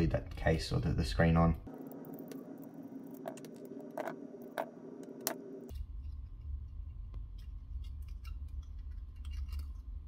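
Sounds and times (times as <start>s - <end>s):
low hum: 0.2s - 10.0s.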